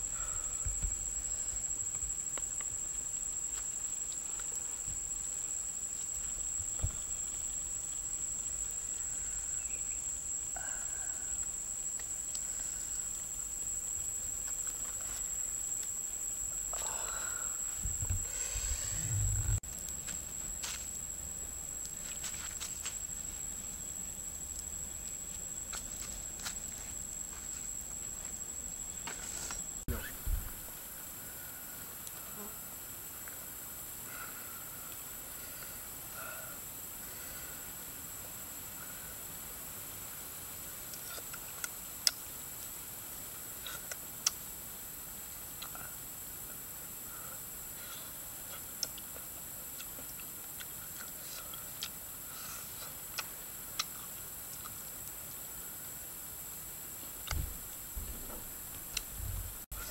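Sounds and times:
high-pitched insect drone: 0.0 - 32.6
steady high-pitched hiss: 0.0 - 59.9
faint low rumble: 17.7 - 21.9
wood fire crackling: 18.9 - 28.2.

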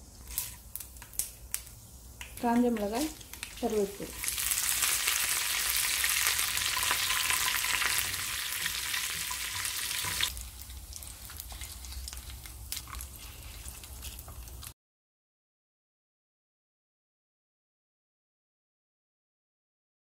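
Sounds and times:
spices sizzling in hot oil: 0.0 - 14.8.

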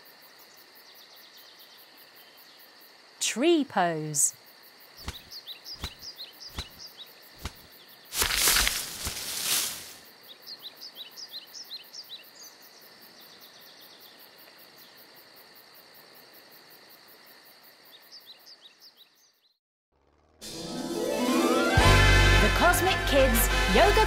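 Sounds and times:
quick bird chirps: 5.0 - 10.0.

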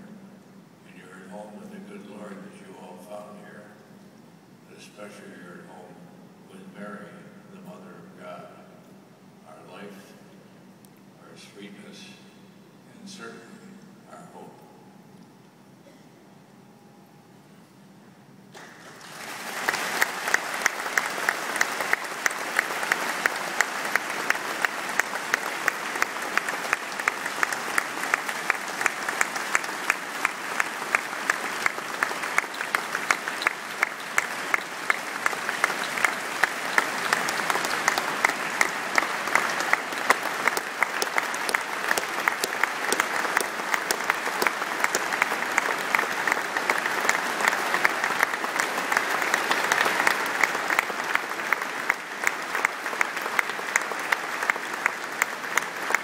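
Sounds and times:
large crowd applauding: 18.5 - 56.0.

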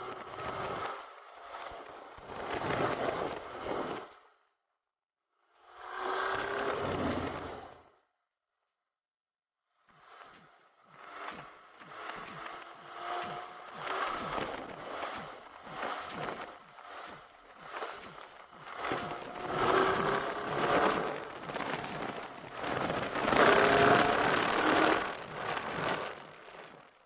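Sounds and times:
motorcycle engines running: 10.0 - 27.0.

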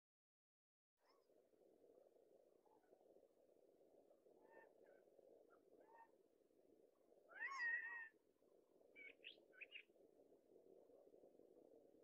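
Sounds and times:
quail calling: 7.3 - 8.1.

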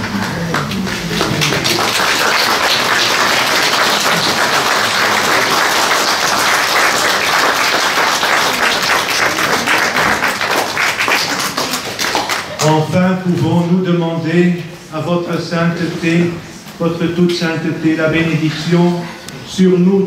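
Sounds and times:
crowd applauding: 0.0 - 12.8.

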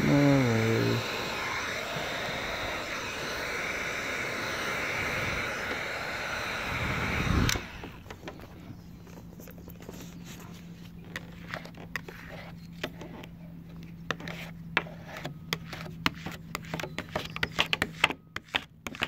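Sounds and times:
steady low hum: 0.0 - 18.8
plastic card scraping and clicking: 9.1 - 19.0.

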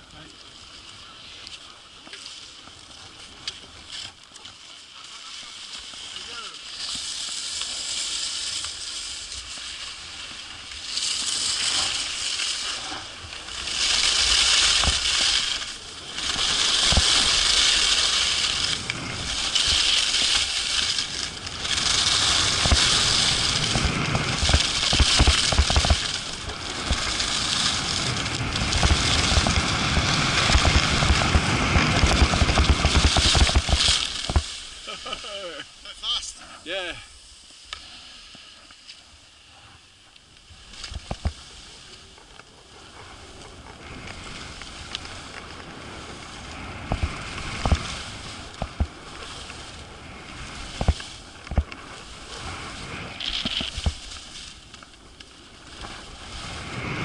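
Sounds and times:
skis scraping on snow: 0.0 - 57.0
low thumps and rumble: 27.9 - 34.5.

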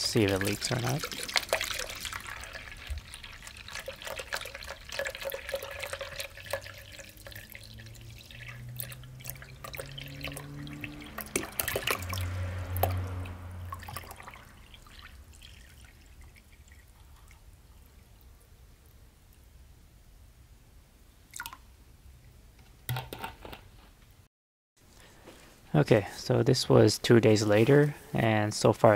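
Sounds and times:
water pouring into a box: 0.0 - 13.1, 13.7 - 17.5
water trickling: 0.0 - 18.3, 21.3 - 21.6.

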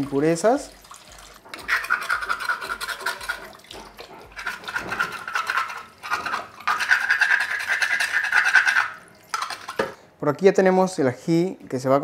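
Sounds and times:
shell being scrubbed: 1.5 - 10.0.

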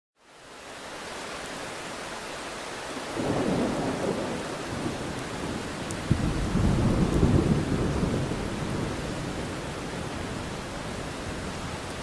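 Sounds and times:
heavy rain falling: 0.2 - 12.0
thunder clap and rumble: 3.2 - 11.4.

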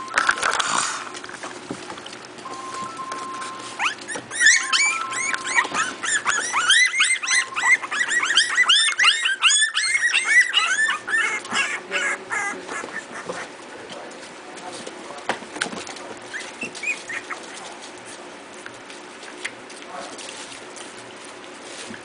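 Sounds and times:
puppies yelping and squealing: 2.5 - 13.7, 16.2 - 18.0.

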